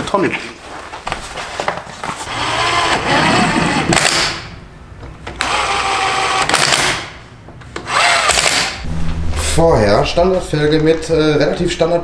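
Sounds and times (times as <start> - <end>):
impact wrench hammering: 2.3 - 4.6, 5.4 - 7.2, 7.8 - 8.9.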